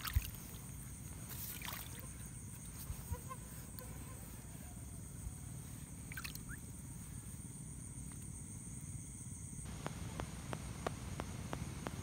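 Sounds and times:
night insects trilling: 0.0 - 11.8.

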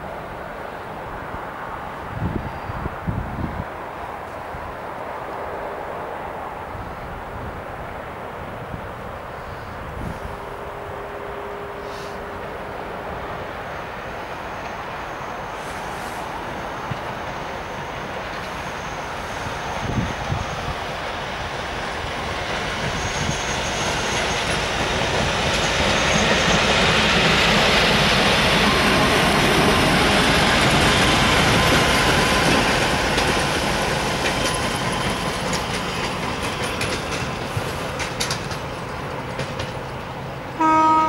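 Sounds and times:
train engine and wheels passing: 0.0 - 41.0
train horn blast: 10.1 - 12.5, 40.6 - 41.0.

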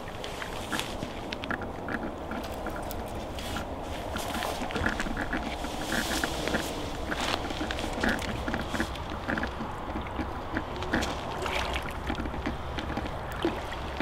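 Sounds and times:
water sloshing and splashing: 0.0 - 14.0
tackle knocks and clicks: 7.6 - 14.0.

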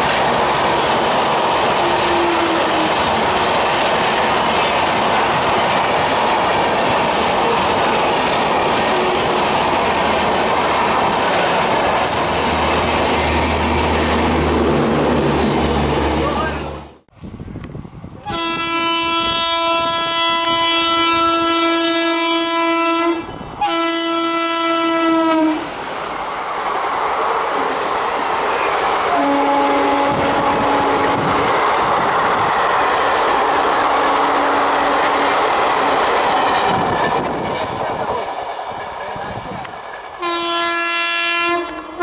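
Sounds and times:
train coaches rattling past: 0.0 - 17.0, 17.8 - 42.0
train horn blasts: 1.8 - 3.0, 18.2 - 25.7, 29.1 - 31.3, 34.0 - 35.4, 40.2 - 42.0.

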